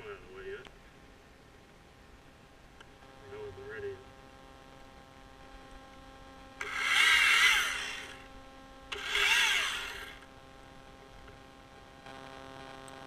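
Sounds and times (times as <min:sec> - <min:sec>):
chainsaw revving cutting wood: 0:06.6 - 0:08.3, 0:08.9 - 0:10.2.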